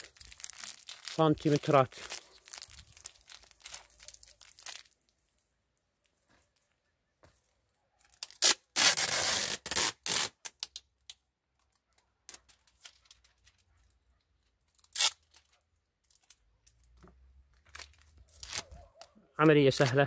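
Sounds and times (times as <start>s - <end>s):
plastic film crinkling: 0.0s - 5.4s, 12.3s - 13.9s, 14.6s - 18.9s, 19.7s - 20.0s.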